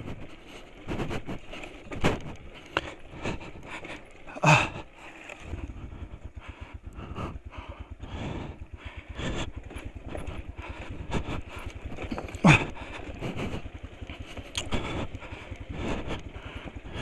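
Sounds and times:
knocks and clatter over rocks: 0.0 - 5.8, 9.2 - 17.0
motorcycle engine low revs: 0.0 - 17.0.

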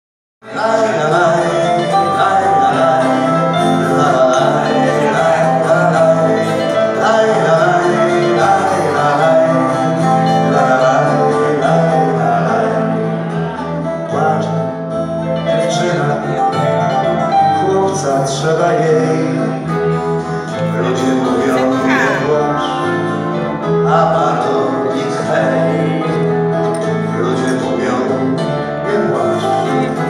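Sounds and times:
plucked acoustic guitar: 0.4 - 30.0
small live band playing: 0.4 - 30.0.

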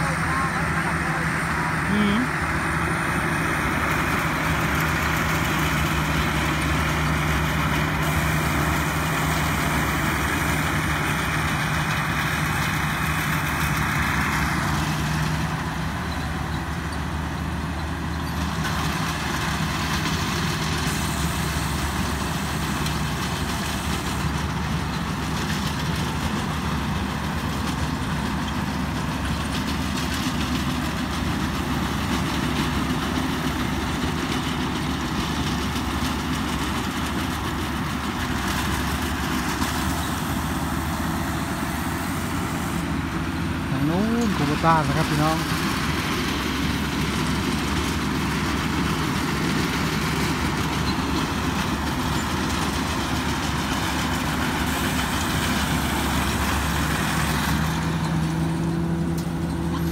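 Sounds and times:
combine harvester diesel engine: 0.0 - 59.9.

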